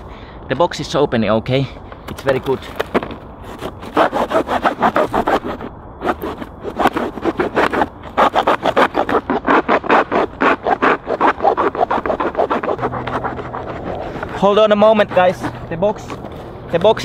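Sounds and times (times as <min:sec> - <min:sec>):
hand saw cutting cardboard: 0:03.5 - 0:17.0.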